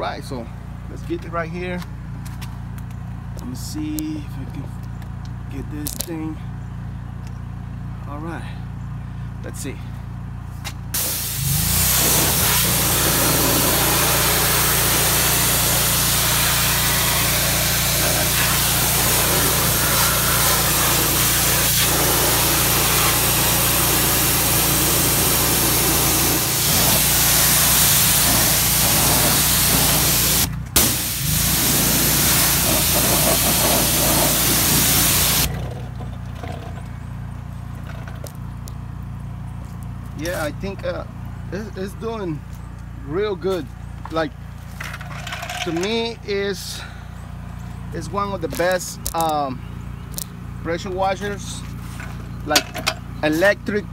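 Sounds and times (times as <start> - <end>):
pressure washer water jet hissing: 11.0 - 35.5.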